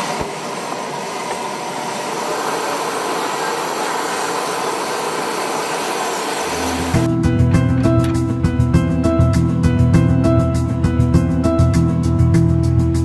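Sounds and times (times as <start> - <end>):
machinery rushing noise: 0.0 - 7.1.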